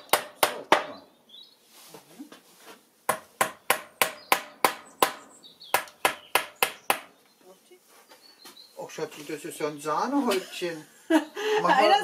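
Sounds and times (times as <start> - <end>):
wooden mallet knocking on dowels: 3.1 - 7.1.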